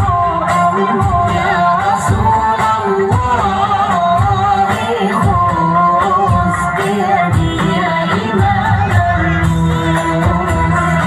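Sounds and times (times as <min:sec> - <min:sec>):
choir singing: 0:00.0 - 0:11.0.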